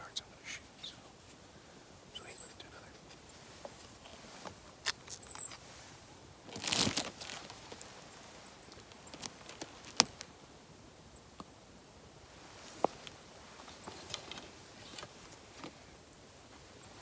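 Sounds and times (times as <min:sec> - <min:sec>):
clothing and gear rustling: 0:03.0 - 0:10.3, 0:12.3 - 0:15.9.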